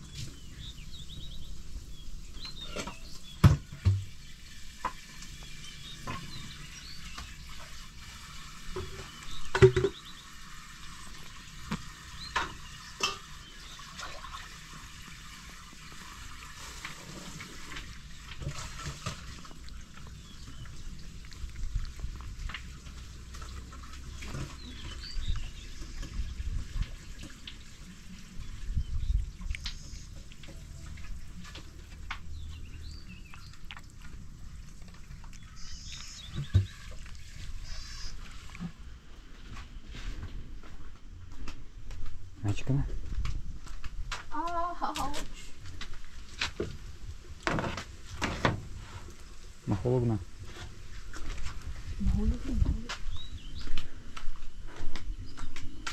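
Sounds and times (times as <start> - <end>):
birds chirping: 0.0 - 16.3, 17.0 - 40.6, 51.0 - 55.9
cat chewing and licking: 16.0 - 24.2, 33.1 - 38.7
cat chewing with wet clicks: 19.3 - 23.8.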